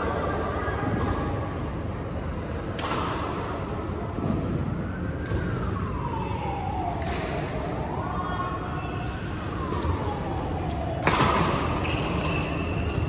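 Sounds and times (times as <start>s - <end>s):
sports hall noise: 0.0s - 13.0s
siren wailing: 5.0s - 11.8s
racket hitting shuttlecock: 11.0s - 13.0s.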